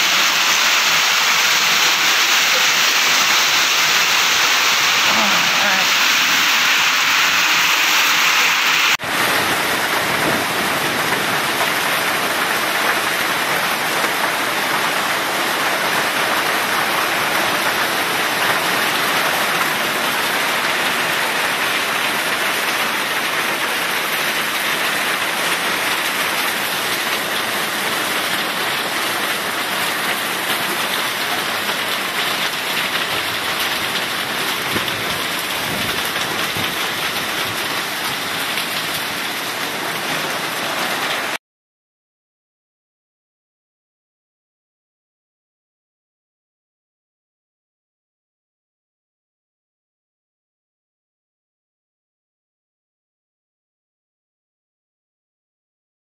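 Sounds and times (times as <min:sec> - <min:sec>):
heavy rain and hail: 0:00.0 - 0:41.4.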